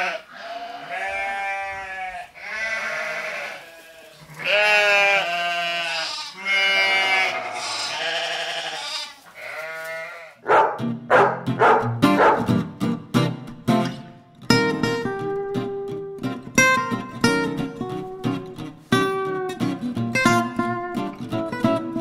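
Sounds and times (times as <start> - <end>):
sheep bleating: 0.0 - 10.4
strummed acoustic guitar music: 10.6 - 22.0.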